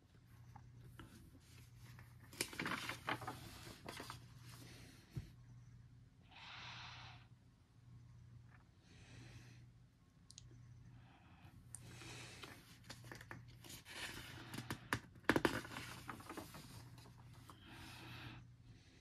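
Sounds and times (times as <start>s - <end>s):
paper rustling: 1.0s - 4.6s, 12.4s - 17.5s
paper crackling: 1.8s - 4.2s, 12.8s - 17.4s.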